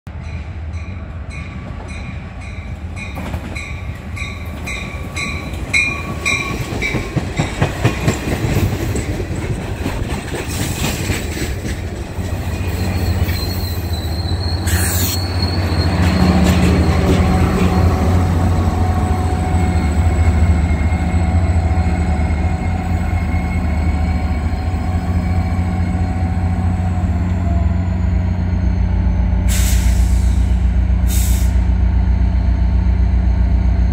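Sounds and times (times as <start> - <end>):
diesel locomotive low drone: 0.1 - 33.9
train wheels clattering: 3.1 - 13.9, 14.8 - 18.1.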